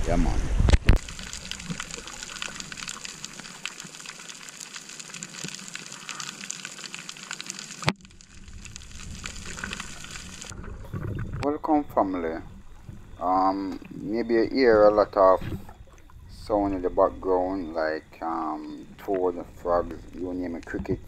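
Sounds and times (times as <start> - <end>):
underwater hiss with crackling clicks: 0.7 - 11.4.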